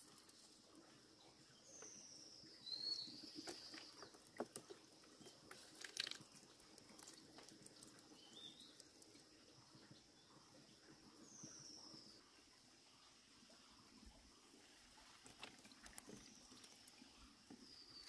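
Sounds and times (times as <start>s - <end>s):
stream trickling: 0.0s - 18.0s.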